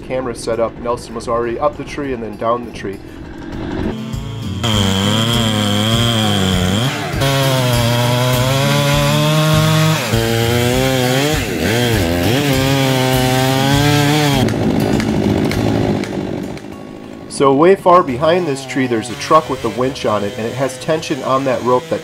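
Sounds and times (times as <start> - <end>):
chainsaw cutting wood: 3.3 - 22.0.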